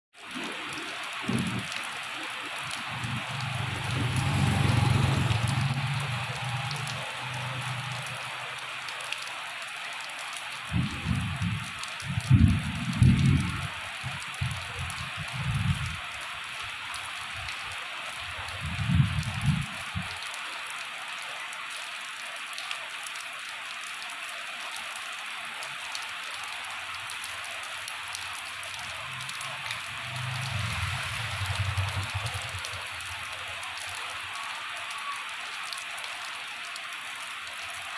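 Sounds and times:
rain on wet road and foliage: 0.1s - 37.9s
motorbike engine hum: 3.4s - 7.8s.

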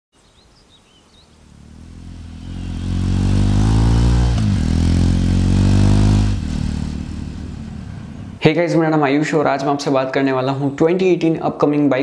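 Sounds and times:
motorcycle engine approaching: 1.2s - 8.4s.

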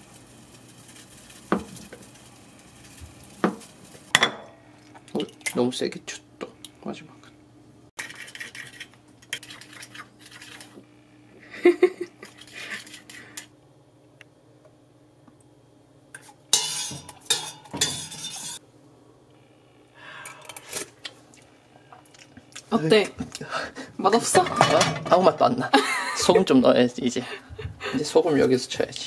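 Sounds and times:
metal utensils clattering in pot: 16.2s - 18.6s, 24.2s - 25.4s.

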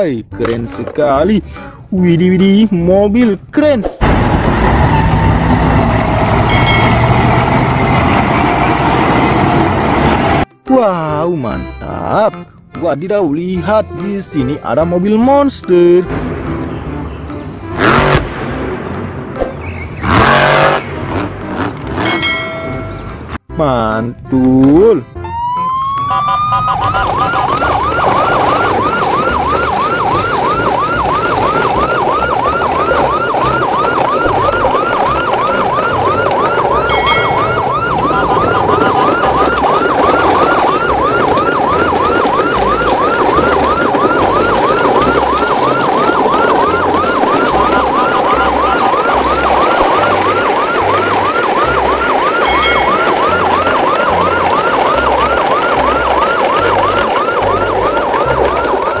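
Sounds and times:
fast siren wail: 20.0s - 20.8s, 25.2s - 59.0s
high chime: 52.4s - 53.0s.

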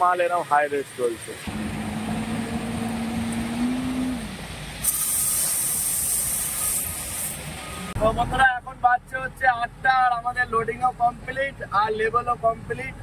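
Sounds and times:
heavy machinery droning: 1.5s - 4.5s
loud hiss: 4.8s - 7.6s.

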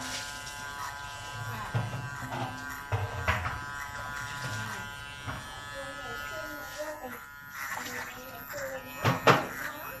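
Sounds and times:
electric hair clipper buzzing: 0.0s - 10.0s.

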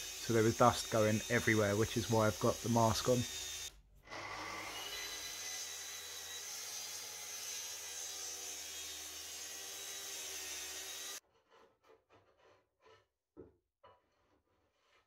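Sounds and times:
circular saw cutting plywood: 0.0s - 11.6s.

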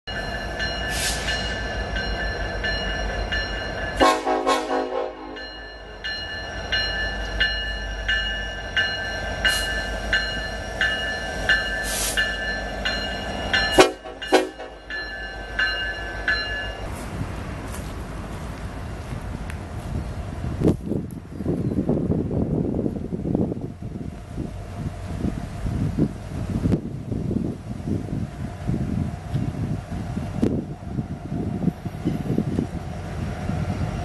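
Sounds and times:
train clattering: 0.1s - 22.6s
steady high-pitched tone: 5.1s - 16.9s.

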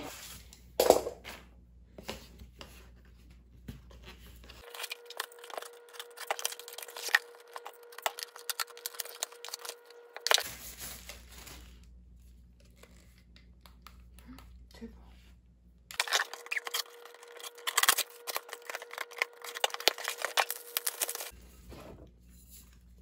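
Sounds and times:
packaging rustling and tearing: 4.6s - 12.0s, 15.9s - 21.4s.

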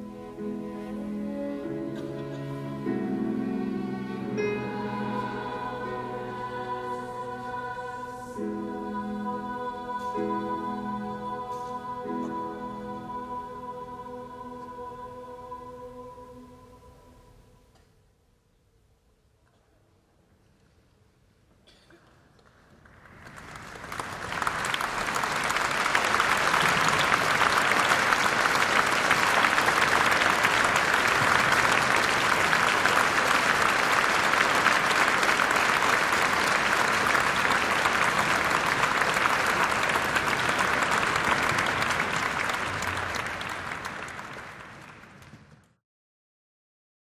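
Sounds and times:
audience applauding: 22.5s - 45.8s.

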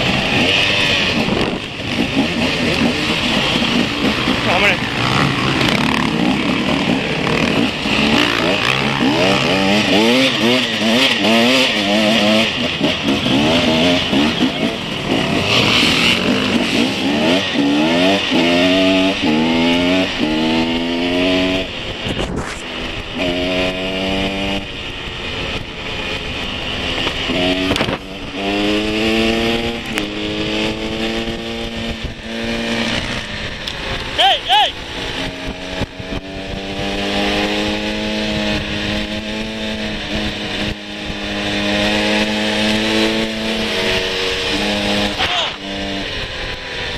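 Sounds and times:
wind noise on microphone: 0.0s - 2.5s, 20.2s - 34.0s, 35.0s - 46.9s
motorcycle engine revving: 0.0s - 46.9s.

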